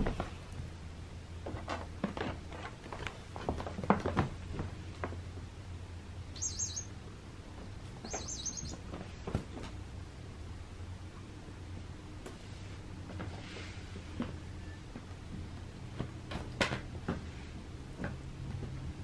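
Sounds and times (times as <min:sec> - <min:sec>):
high bird-like chirping: 0:06.3 - 0:07.0, 0:08.0 - 0:08.8.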